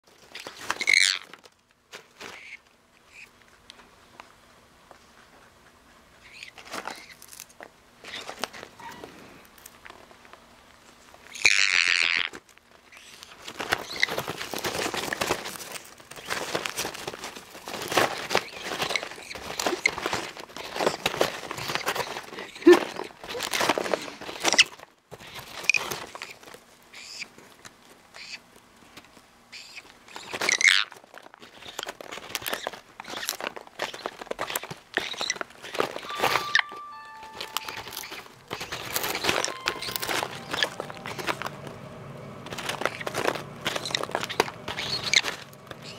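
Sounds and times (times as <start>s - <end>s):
popcorn rustling: 0.0s - 45.9s
parrot squawk: 8.1s - 9.1s, 11.3s - 12.3s, 34.5s - 41.4s, 43.7s - 45.9s
paper bag crinkling: 12.2s - 26.7s, 30.1s - 45.9s
parrot high wavering call: 36.0s - 41.4s.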